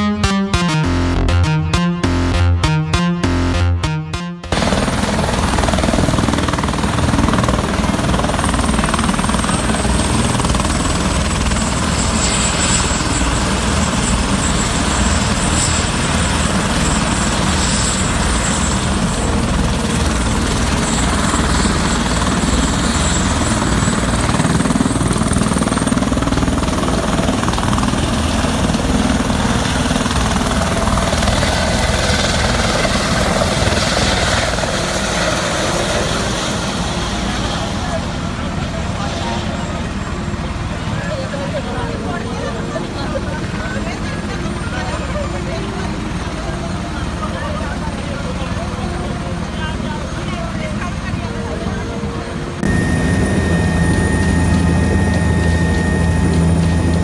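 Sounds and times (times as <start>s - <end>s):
helicopter rotor and engine: 4.5s - 57.0s
thin high whine: 52.6s - 57.0s.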